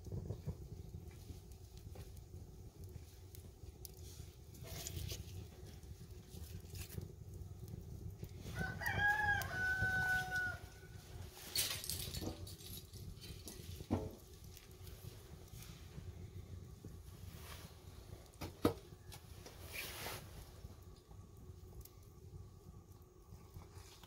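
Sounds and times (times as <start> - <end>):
low steady rumble: 0.0 - 24.0
rooster crowing: 8.5 - 11.2.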